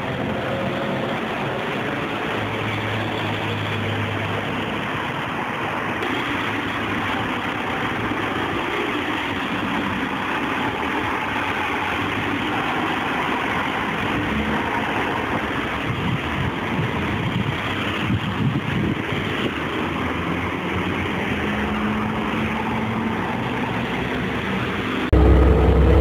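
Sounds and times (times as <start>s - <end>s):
bus diesel engine idling: 0.0s - 26.0s
street traffic: 0.0s - 26.0s.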